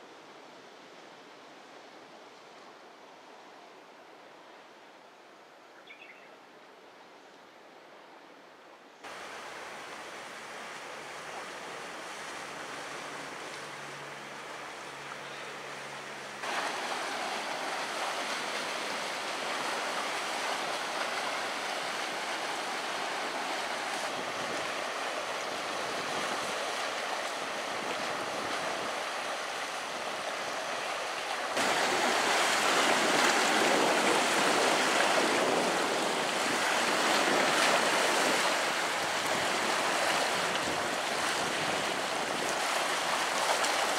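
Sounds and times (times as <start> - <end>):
waves breaking on rocks: 16.1 - 43.9.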